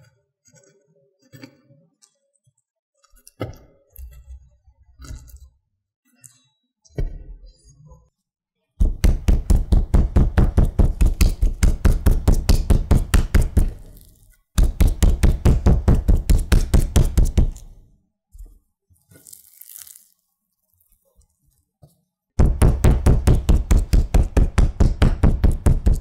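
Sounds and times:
meat mallet pounding on wooden board: 8.8s - 13.9s, 14.6s - 17.6s, 22.4s - 26.0s.

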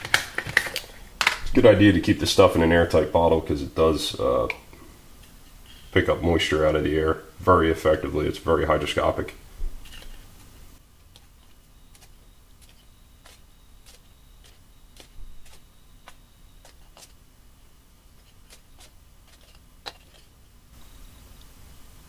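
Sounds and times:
metal spatula tapping plastic and paper: 11.2s - 17.2s, 18.2s - 20.3s.

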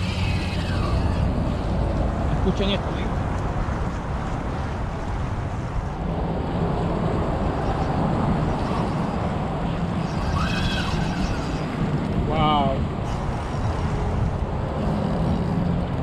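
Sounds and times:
fishing reel drag buzzing: 0.0s - 1.7s, 10.0s - 11.9s, 13.0s - 15.6s
wind on microphone: 0.0s - 16.0s.

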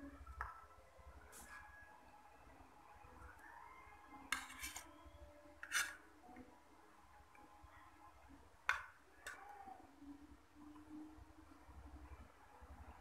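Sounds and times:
metal spoon scraping a plate: 4.3s - 4.9s, 5.6s - 6.0s.

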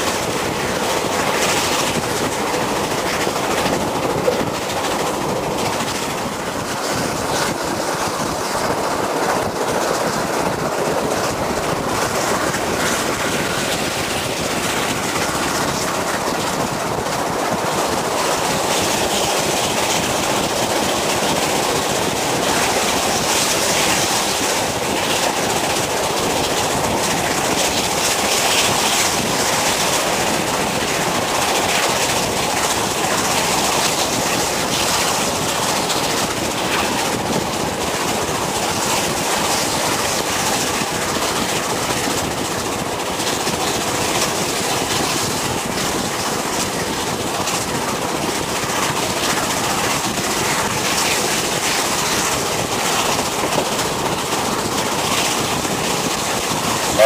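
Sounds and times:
rush of air: 0.0s - 41.4s
train wheels rolling on rails: 0.0s - 57.0s.

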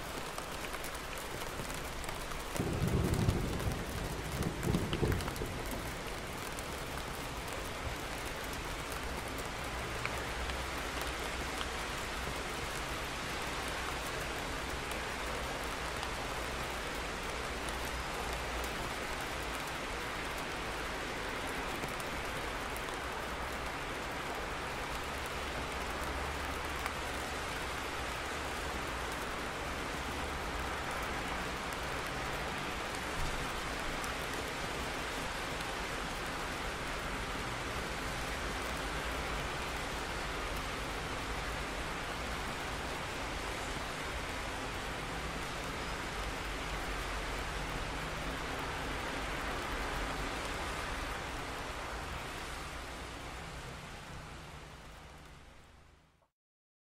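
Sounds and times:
rain on hard surfaces: 0.0s - 56.3s.

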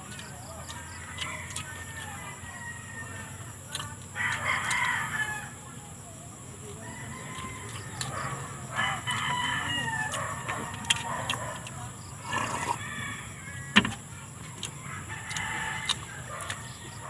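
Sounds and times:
rooster crowing: 0.9s - 5.7s, 6.8s - 11.2s, 12.2s - 14.0s, 14.7s - 17.0s.

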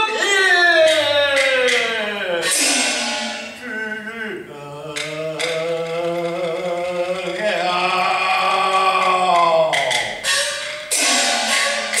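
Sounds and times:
man singing in long sliding notes: 0.0s - 2.6s, 3.3s - 10.2s
sharp percussion strikes: 0.8s - 3.7s, 8.3s - 12.0s.

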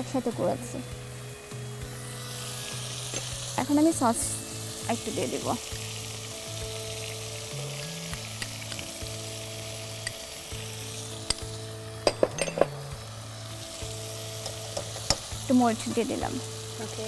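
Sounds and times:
meat sizzling in a pot: 0.0s - 17.0s
soft background music: 0.0s - 17.0s
sharp utensil clicks: 11.2s - 12.6s, 14.4s - 15.3s.

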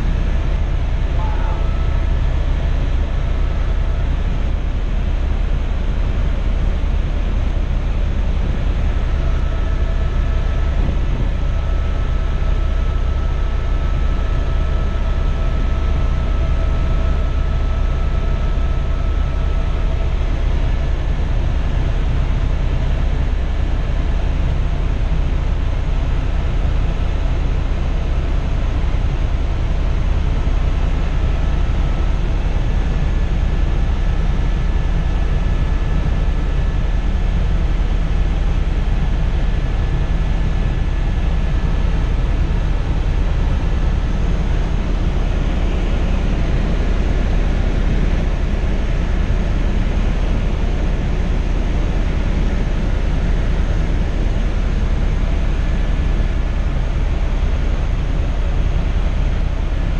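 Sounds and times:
faint steady whining tones: 0.0s - 59.9s
helicopter cabin drone: 0.0s - 59.9s.

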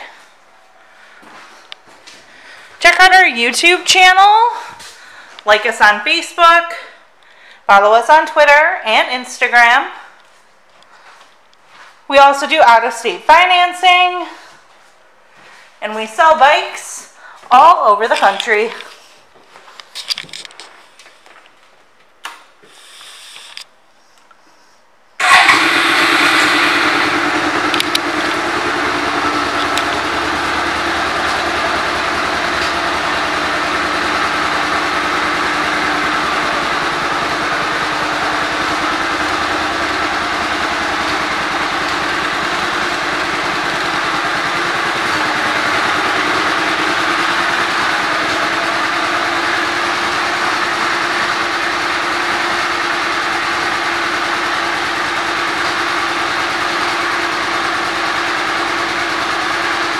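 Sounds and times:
motorcycle engine starting and idling: 25.2s - 59.9s.

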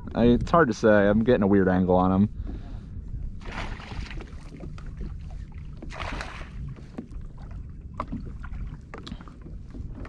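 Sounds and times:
wind rumble on microphone: 0.0s - 10.0s
water splashing: 3.4s - 9.4s.

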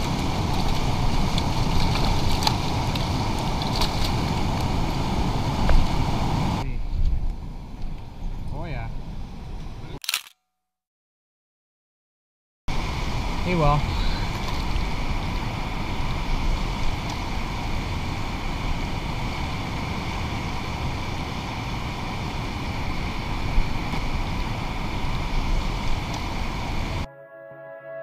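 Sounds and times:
river water rushing: 0.0s - 6.6s
wind buffeting microphone: 0.0s - 10.0s, 12.7s - 27.1s
faint steady whine: 12.7s - 27.1s.

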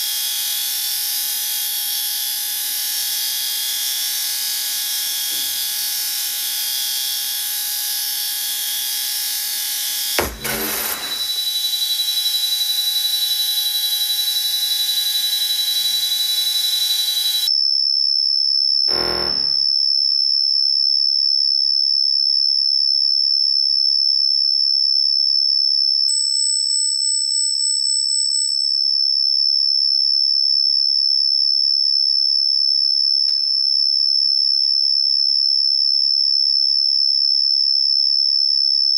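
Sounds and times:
high alarm-like pure tone: 0.0s - 17.5s, 18.9s - 19.7s
sharp electronic hit: 10.2s - 11.5s, 18.9s - 19.6s
short burst of noise: 10.2s - 11.5s, 18.9s - 19.6s
dense electronic hissing noise: 18.9s - 19.6s.

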